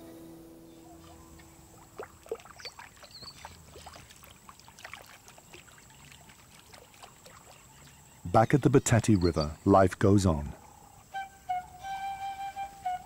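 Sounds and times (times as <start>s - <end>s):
bird splashing water: 1.0s - 8.2s.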